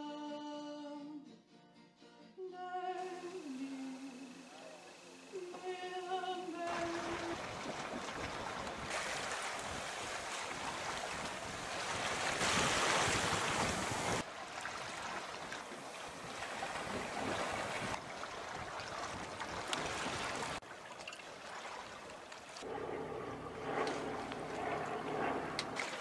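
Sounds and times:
water noise: 3.0s - 26.0s
wind rushing over microphone: 7.0s - 14.2s.

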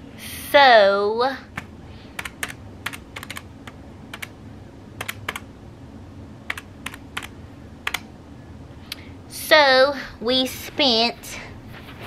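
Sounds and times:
calculator keys clicking: 1.6s - 3.4s, 5.0s - 5.4s, 6.5s - 8.0s.

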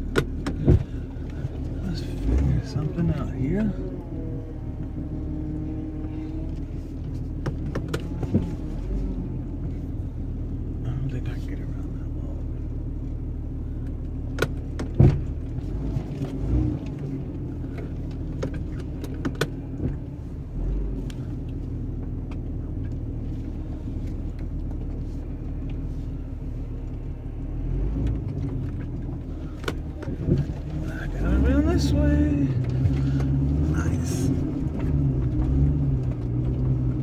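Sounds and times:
vehicle knocks and rattles: 0.0s - 3.4s, 6.6s - 9.0s, 13.9s - 20.3s, 28.0s - 37.0s
engine running at low speed: 0.0s - 37.0s.

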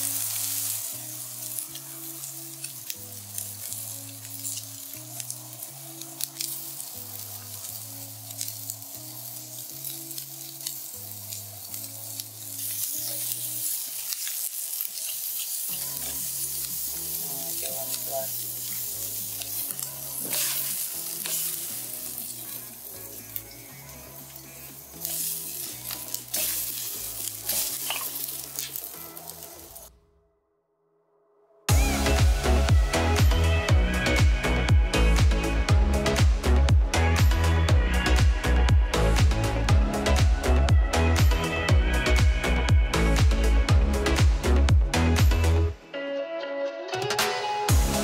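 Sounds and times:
steaks sizzling on a grill: 0.0s - 29.9s
soft background music with bass: 0.0s - 30.2s, 31.7s - 48.0s.

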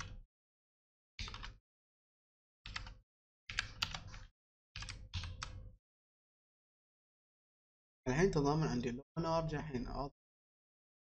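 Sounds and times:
typing on computer keyboard: 1.2s - 1.6s, 2.7s - 5.6s.

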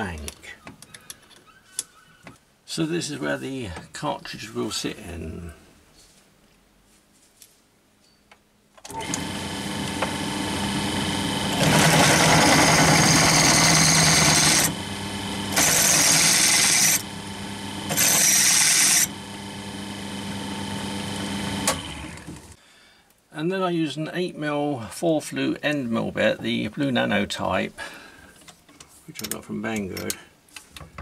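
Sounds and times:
drill press motor running: 8.9s - 22.6s
drill bit cutting metal: 9.0s - 21.7s.

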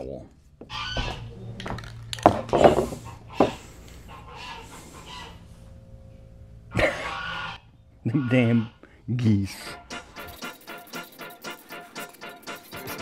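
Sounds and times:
geese honking: 0.6s - 1.3s, 3.0s - 5.8s, 6.7s - 9.0s.

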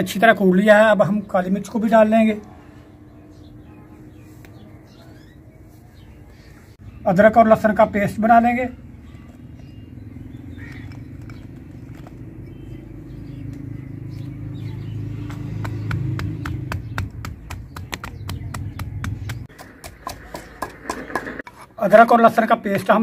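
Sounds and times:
pestle pounding in stone mortar: 15.2s - 21.5s.

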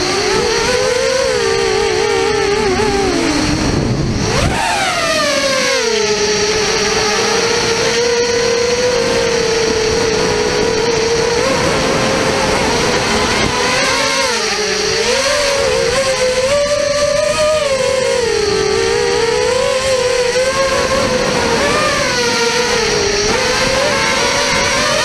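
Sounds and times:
model aircraft motor whining: 0.0s - 25.0s.

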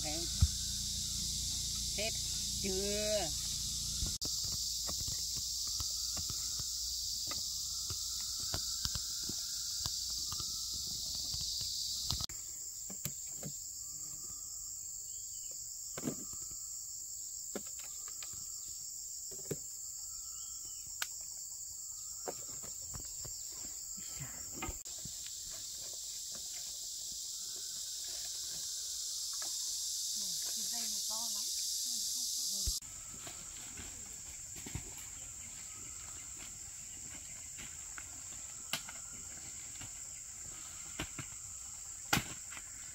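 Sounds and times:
insects chorus: 0.0s - 42.9s.

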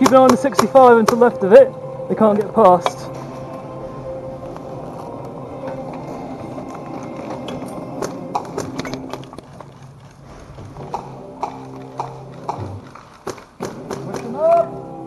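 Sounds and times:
airsoft gunfire pops: 10.9s - 14.4s.

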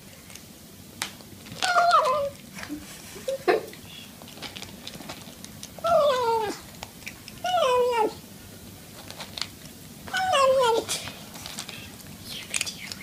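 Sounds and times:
kibble crunching: 0.2s - 2.8s, 3.7s - 13.0s
cat meowing: 1.6s - 2.4s, 5.8s - 6.6s, 7.4s - 8.2s, 10.1s - 10.9s.

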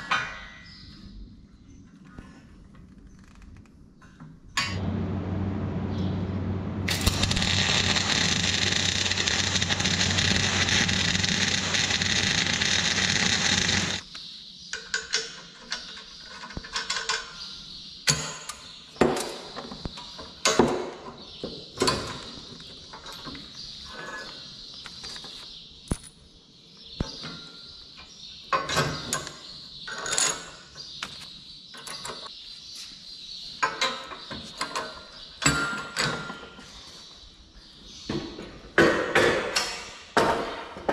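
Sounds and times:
welding arc crackling: 4.8s - 14.1s.

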